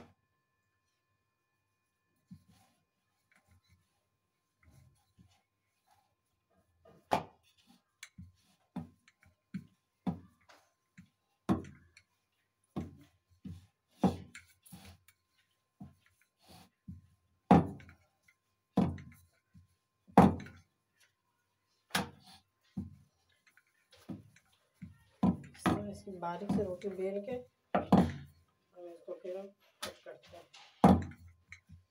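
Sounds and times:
rolling pin knocking on wooden board: 17.5 - 18.0, 20.1 - 20.6, 25.2 - 27.0, 27.7 - 28.3, 30.8 - 31.9.

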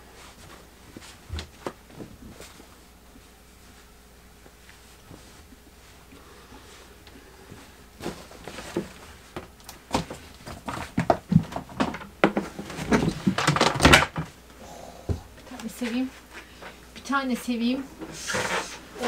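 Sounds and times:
objects knocking and clicking: 9.9 - 14.3.

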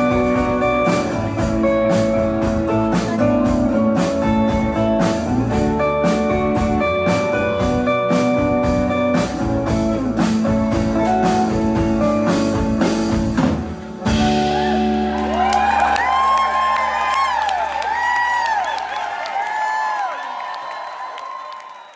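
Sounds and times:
drum kit: 0.0 - 18.5
live band playing: 0.0 - 18.9
audience whooping: 14.2 - 21.9.

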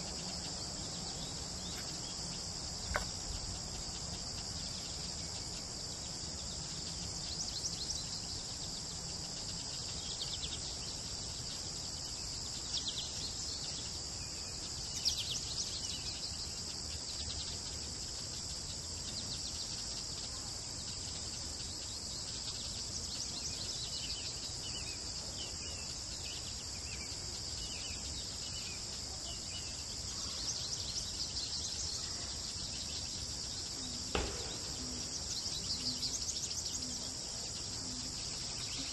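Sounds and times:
high-pitched insect chorus: 0.0 - 38.9
bird chirps: 27.6 - 38.9.

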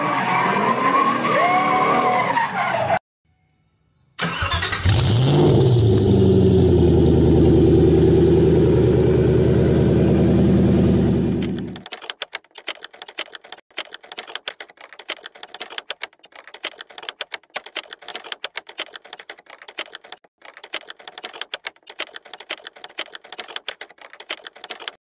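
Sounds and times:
keyboard typing: 11.4 - 25.0.

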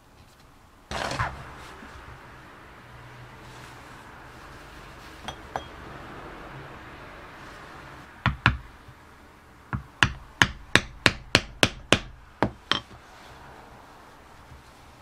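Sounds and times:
mallet tapping leather chisel: 8.2 - 8.7, 9.7 - 13.0.

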